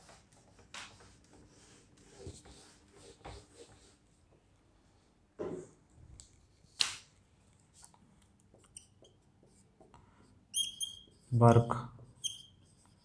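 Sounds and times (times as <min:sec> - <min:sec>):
marker squeaking on a whiteboard: 0:08.6 - 0:09.6, 0:10.5 - 0:11.4, 0:12.0 - 0:13.0.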